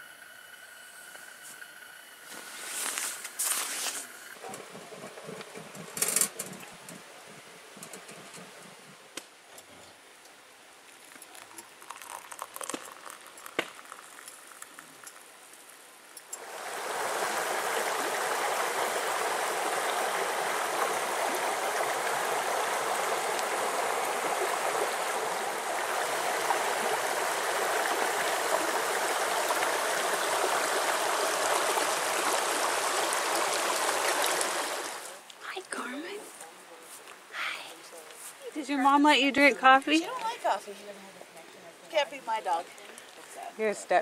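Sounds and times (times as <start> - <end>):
creek flowing over stones: 10.3 - 36.2.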